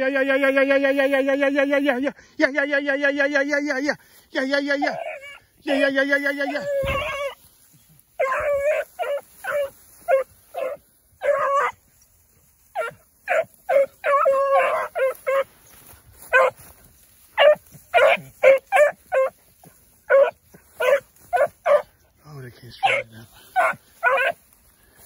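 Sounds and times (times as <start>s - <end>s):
beagle puppies baying: 4.8s - 24.6s.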